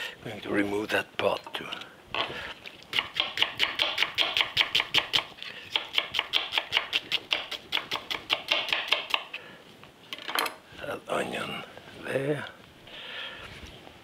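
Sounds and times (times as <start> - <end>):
knife chopping on wooden board: 3.0 - 9.3.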